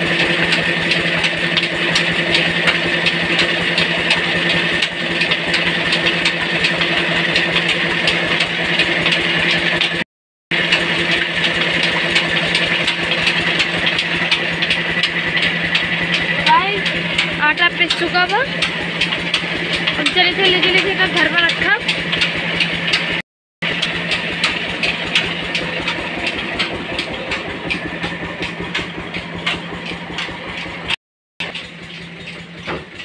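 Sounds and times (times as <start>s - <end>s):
flour mill hum: 0.0s - 33.0s
rapid rattling clicks: 10.7s - 33.0s.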